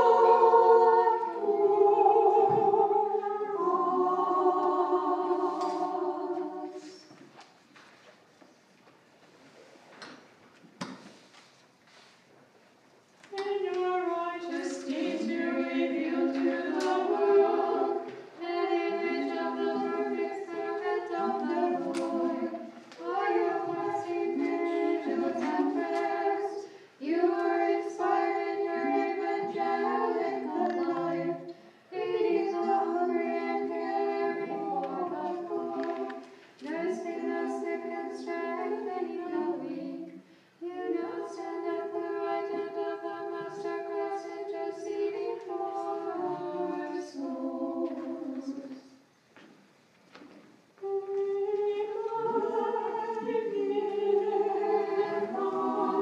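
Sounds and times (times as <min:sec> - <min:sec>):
choir chanting a cappella: 0:00.0 - 0:07.2, 0:13.3 - 0:49.0, 0:50.8 - 0:56.0.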